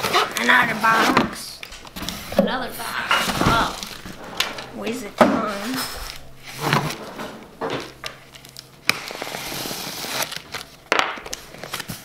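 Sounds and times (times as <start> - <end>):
knife slitting packing tape: 8.9 - 12.0.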